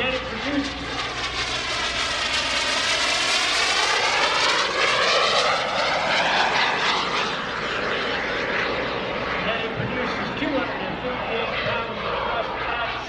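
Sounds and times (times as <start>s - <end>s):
jet engine whine passing: 0.0s - 13.0s.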